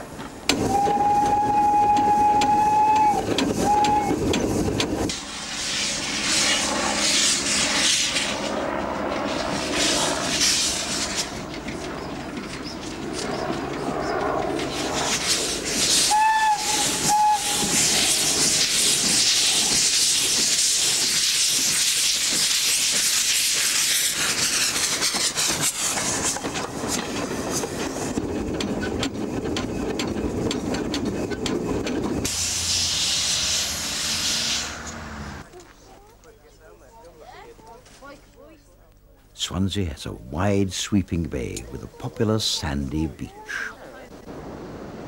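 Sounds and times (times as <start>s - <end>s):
steam locomotive whistle blasts: 0.6s - 4.2s, 16.0s - 17.9s
loud hiss of steam: 0.6s - 8.4s, 14.9s - 28.1s, 32.2s - 35.0s.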